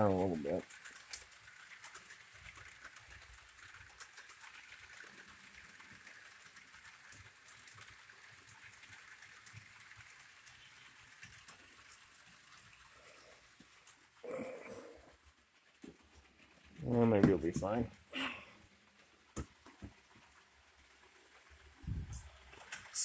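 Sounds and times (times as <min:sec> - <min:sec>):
model train rolling whir: 0:00.0 - 0:23.0
wheels clicking on rails: 0:00.0 - 0:23.0.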